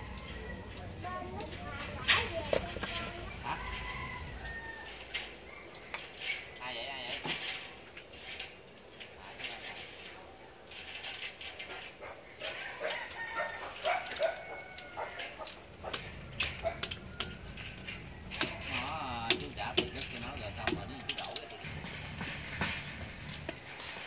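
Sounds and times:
chickens clucking: 11.6s - 21.7s
metal tongs tapping a wok: 14.8s - 21.6s.

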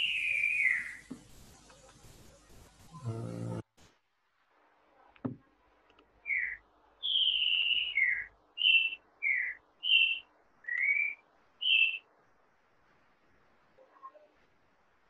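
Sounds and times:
soft knock: 5.2s - 5.4s.

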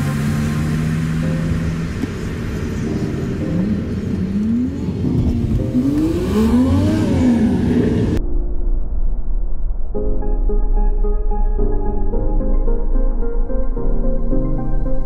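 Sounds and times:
car engine revving: 0.0s - 8.2s.

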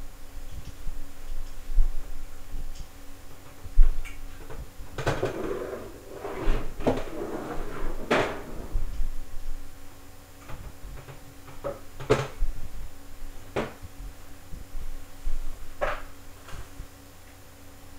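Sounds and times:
broom sweeping hard floor: 5.2s - 9.0s.

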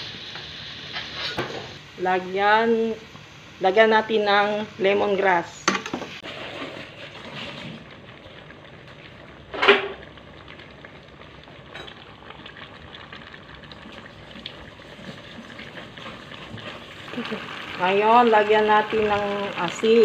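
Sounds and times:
meat sizzling in a pan: 0.0s - 5.2s, 9.3s - 20.0s
spatula scraping a pan: 0.9s - 1.8s, 6.2s - 7.7s.

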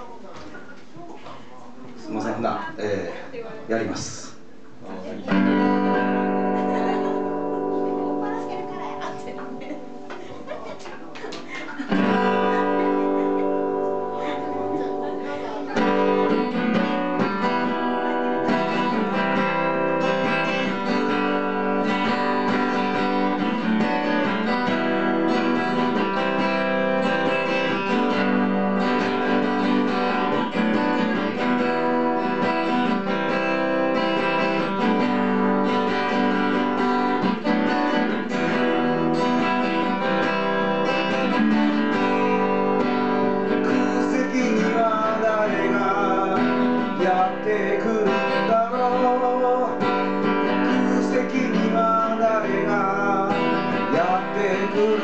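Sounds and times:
acoustic guitar strumming chords: 5.3s - 10.6s, 11.8s - 55.0s.

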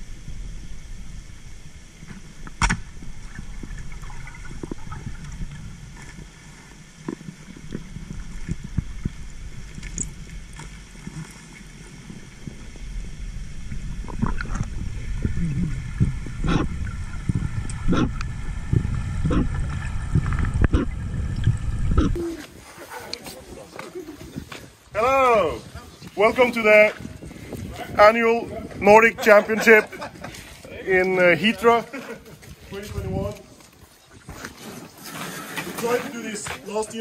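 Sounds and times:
underwater rumble of moving water: 0.0s - 22.4s.

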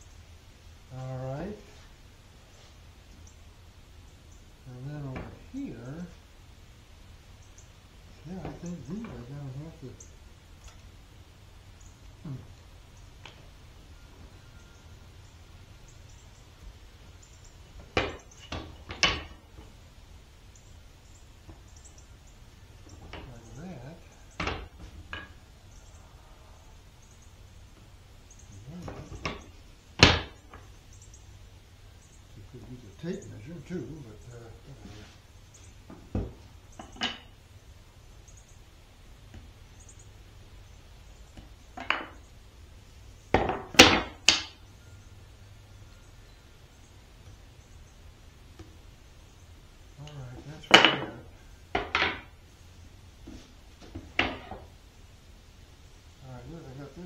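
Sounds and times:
wood pieces knocking together: 17.8s - 19.7s, 24.4s - 25.3s, 28.8s - 30.7s, 35.9s - 37.3s, 41.4s - 42.2s, 43.3s - 44.6s, 50.7s - 52.4s, 53.2s - 54.7s
wood set down on workbench: 18.0s - 19.4s, 41.8s - 42.2s, 51.7s - 52.3s, 53.3s - 54.7s.

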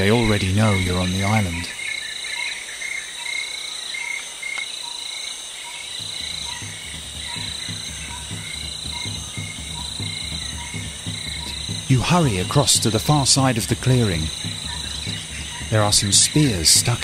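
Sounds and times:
crickets and insects chirping: 0.0s - 17.0s
low rhythmic pulsing: 6.0s - 17.0s.

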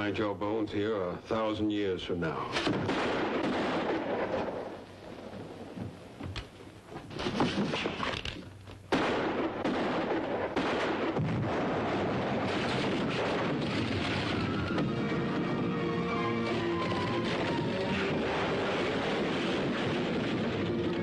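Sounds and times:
gunshot-like cracks: 2.6s - 4.7s, 8.9s - 14.9s
explosion blast and rumble: 2.7s - 5.4s, 8.9s - 21.0s
dramatic orchestral music: 14.8s - 18.1s.

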